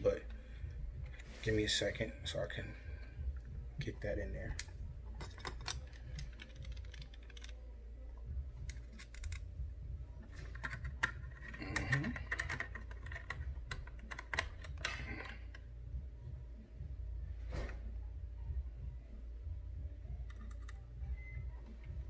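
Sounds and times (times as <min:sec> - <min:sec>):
steady low hum: 0:00.0 - 0:22.0
screwdriver and screws clicking: 0:10.3 - 0:15.4.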